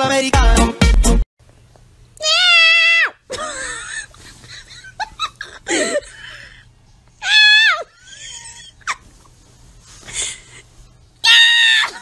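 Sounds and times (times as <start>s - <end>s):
person giggling and laughing: 3.3s - 6.4s, 7.8s - 9.2s.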